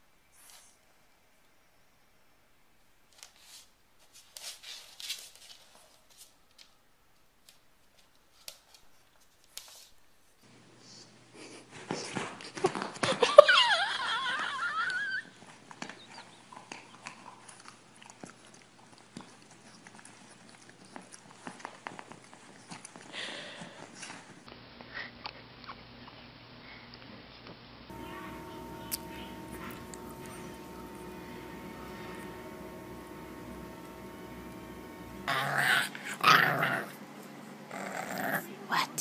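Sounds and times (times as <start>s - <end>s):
small clicks and rustles: 3.1s - 10.1s.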